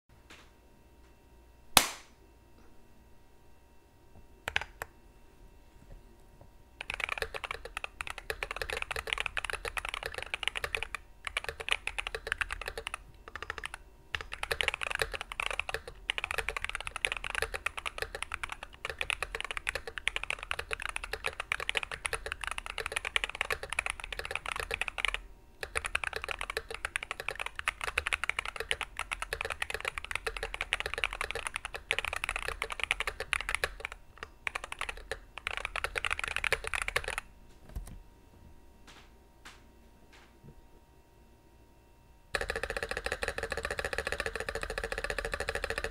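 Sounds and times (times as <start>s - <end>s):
mechanical keyboard typing: 4.5s - 4.9s, 6.8s - 38.0s, 42.4s - 45.9s.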